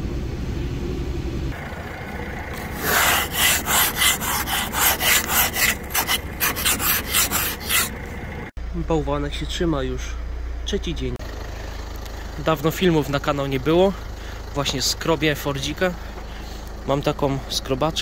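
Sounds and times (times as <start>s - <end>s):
car engine humming: 0.0s - 8.5s, 11.2s - 18.0s
ice scraper scraping windscreen: 2.6s - 8.0s.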